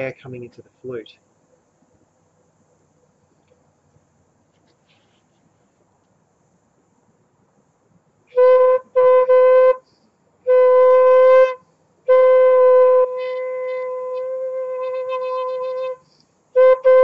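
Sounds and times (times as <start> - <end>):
breathy flute note: 10.5 - 16.0, 16.6 - 17.0.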